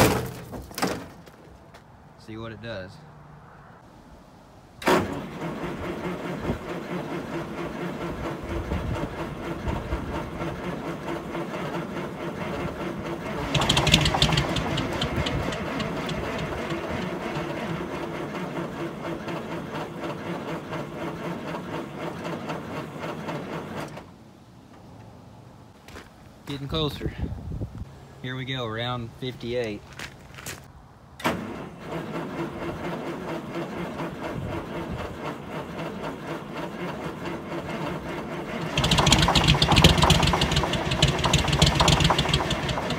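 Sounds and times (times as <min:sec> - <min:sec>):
diesel engine cranking on starter: 0:04.8 - 0:24.2, 0:31.1 - 0:42.9
engine firing briefly: 0:11.6 - 0:18.7, 0:31.2 - 0:42.9.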